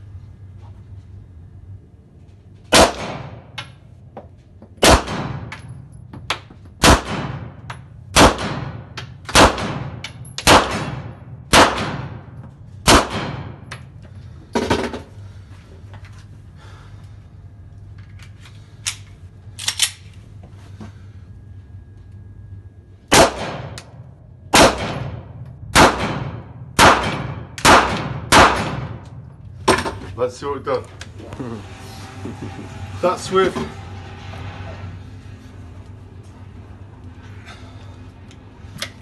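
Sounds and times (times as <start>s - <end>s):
pistol shots ringing indoors: 2.7s - 3.6s, 4.8s - 5.7s, 6.8s - 13.7s, 23.1s - 29.2s
metallic clicks of pistol handling: 18.0s - 20.1s.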